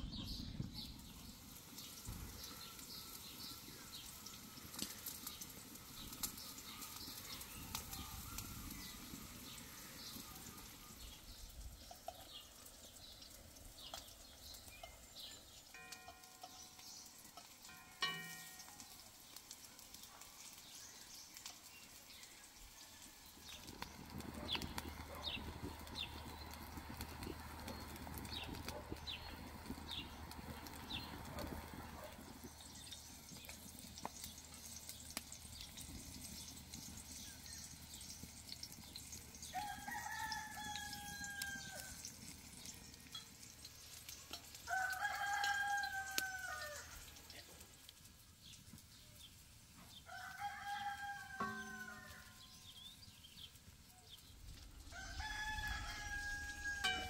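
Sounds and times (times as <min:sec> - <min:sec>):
rooster crowing: 0:39.5 - 0:42.0, 0:44.6 - 0:47.0, 0:50.1 - 0:52.6, 0:54.9 - 0:57.0.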